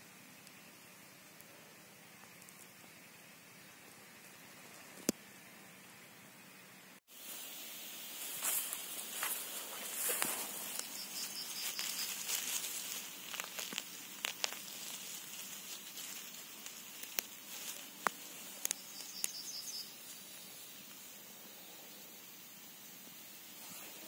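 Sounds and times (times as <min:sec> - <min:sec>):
rustling grass and leaf litter: 0:00.0 - 0:06.2, 0:07.1 - 0:21.8
sharp clicks and snaps: 0:13.2 - 0:15.1, 0:15.8 - 0:19.4.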